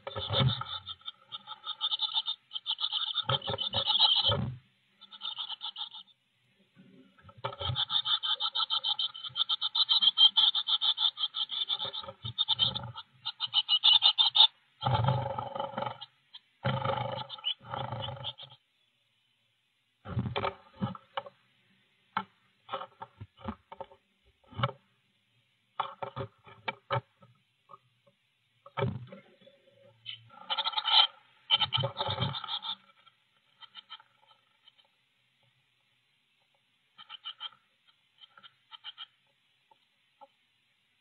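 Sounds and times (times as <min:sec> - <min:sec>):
nestlings chirping high-pitched: 0:00.0 - 0:06.2, 0:07.5 - 0:18.7, 0:30.0 - 0:35.0, 0:37.0 - 0:39.3.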